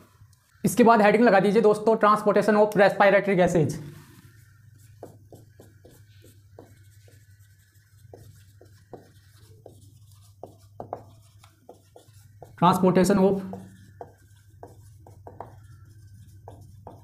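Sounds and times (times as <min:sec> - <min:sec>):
marker squeaking on whiteboard: 0:04.0 - 0:17.0.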